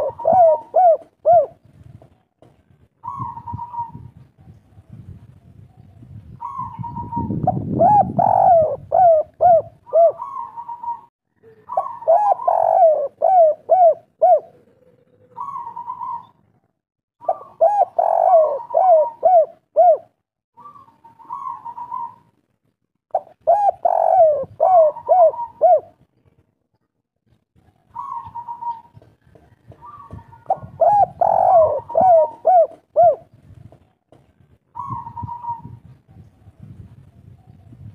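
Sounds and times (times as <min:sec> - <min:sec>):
dove cooing: 0:00.0 - 0:01.7, 0:03.0 - 0:04.2, 0:06.4 - 0:16.6, 0:17.2 - 0:22.3, 0:23.1 - 0:26.0, 0:27.7 - 0:33.4, 0:34.7 - 0:36.7.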